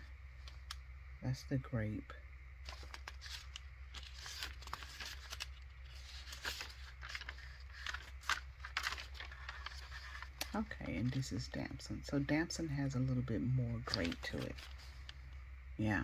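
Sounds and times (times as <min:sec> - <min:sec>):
notebook pages turning: 0:02.6 - 0:11.5, 0:13.7 - 0:15.2.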